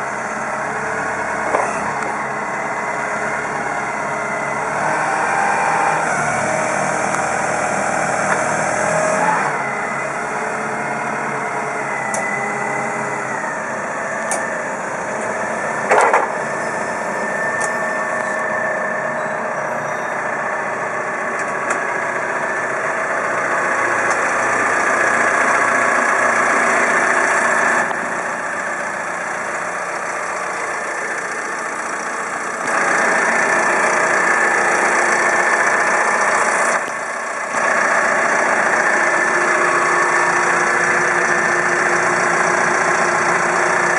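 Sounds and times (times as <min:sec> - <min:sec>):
forklift engine running: 0:00.0 - 0:43.9.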